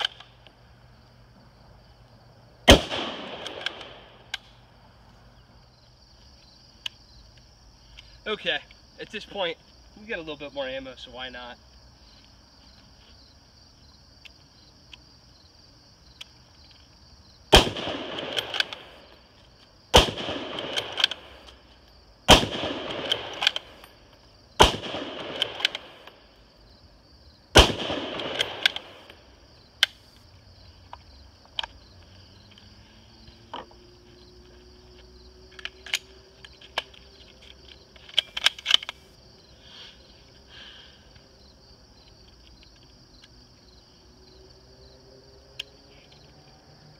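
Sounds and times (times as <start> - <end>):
crickets chirping: 0.0 - 46.9
rifle shots: 2.6 - 4.6, 17.5 - 19.2, 19.9 - 21.6, 22.2 - 23.9, 24.6 - 26.2, 27.5 - 29.2
rifle bolt working: 18.2 - 18.8.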